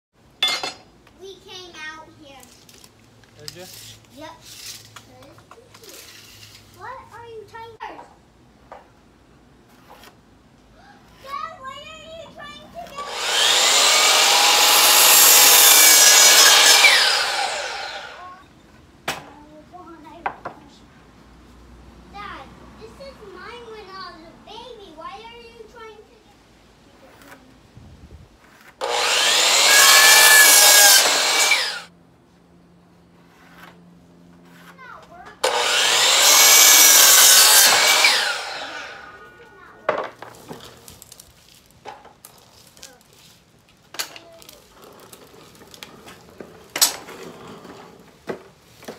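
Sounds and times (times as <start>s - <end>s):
miter saw cutting wood: 12.9s - 18.4s, 28.8s - 31.9s, 35.4s - 39.5s.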